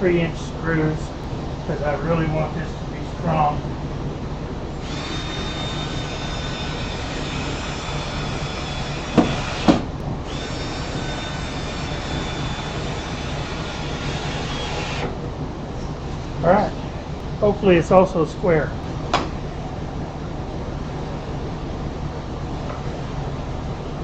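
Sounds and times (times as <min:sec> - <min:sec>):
cordless drill driving screws: 0:04.8 - 0:15.1
sharp knocks: 0:09.1 - 0:09.9.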